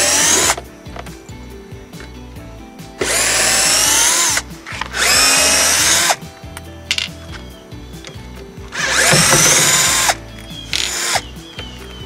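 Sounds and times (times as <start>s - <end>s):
cordless drill whining: 0.0s - 0.6s, 3.0s - 6.2s, 8.7s - 11.5s.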